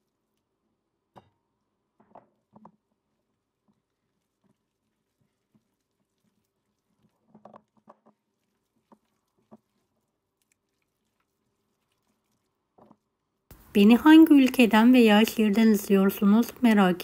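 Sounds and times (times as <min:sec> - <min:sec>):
hands patting wet dough: 0:01.4 - 0:15.9.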